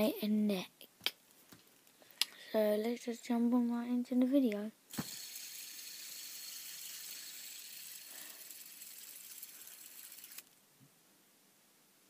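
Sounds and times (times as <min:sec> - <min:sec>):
fidget spinner whirring: 0:04.9 - 0:10.6.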